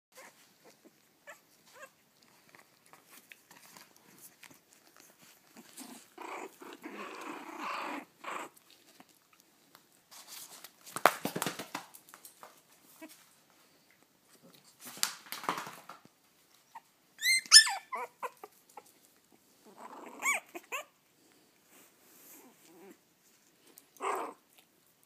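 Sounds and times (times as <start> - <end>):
puppies whimpering and grunting: 0.2 - 9.1, 16.5 - 24.8.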